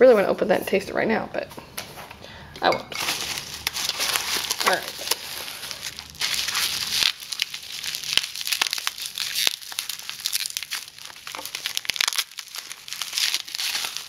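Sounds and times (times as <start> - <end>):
bubble wrap crackling: 3.0 - 14.0.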